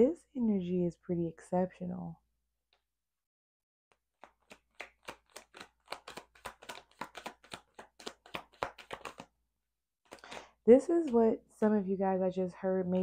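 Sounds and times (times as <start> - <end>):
playing cards shuffling: 4.1 - 9.3, 10.0 - 10.6.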